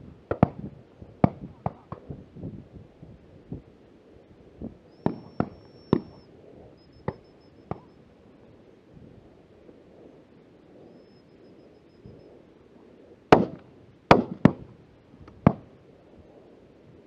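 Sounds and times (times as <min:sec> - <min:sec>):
shotgun shots: 0:05.0 - 0:06.2, 0:13.3 - 0:14.7.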